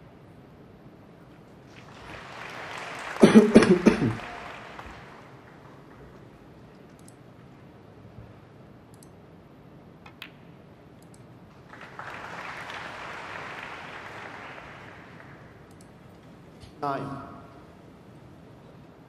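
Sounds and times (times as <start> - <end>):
audience applause: 1.6 - 6.6, 11.5 - 15.7
snooker cue and balls clicking: 10.0 - 10.7.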